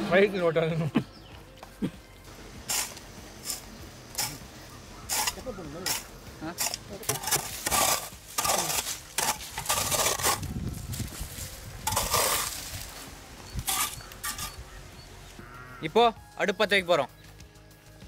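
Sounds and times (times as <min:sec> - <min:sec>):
hoe chopping dry soil: 0:02.4 - 0:10.6, 0:11.8 - 0:12.8, 0:13.5 - 0:14.8.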